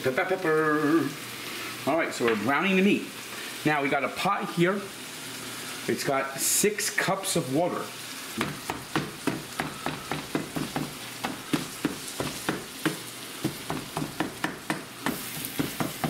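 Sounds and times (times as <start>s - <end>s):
meat sizzling in a frying pan: 0.0s - 16.0s
plastic chopper knocking on pan: 8.4s - 16.0s.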